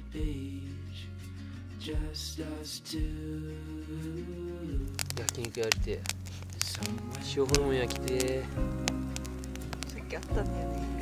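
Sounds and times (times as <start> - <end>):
soft music with bass: 0.0 - 11.0.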